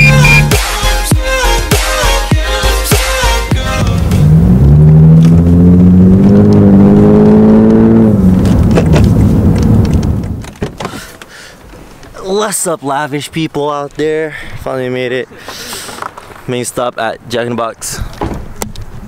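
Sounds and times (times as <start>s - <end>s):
music: 0.0s - 4.4s
car engine accelerating: 3.8s - 10.4s.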